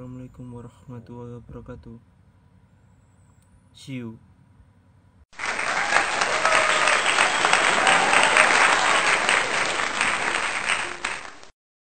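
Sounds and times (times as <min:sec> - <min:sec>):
crowd applause: 0:05.4 - 0:11.5.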